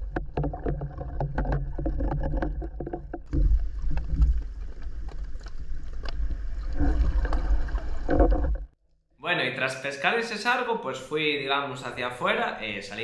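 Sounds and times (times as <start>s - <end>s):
water sloshing underwater: 0.0s - 8.8s.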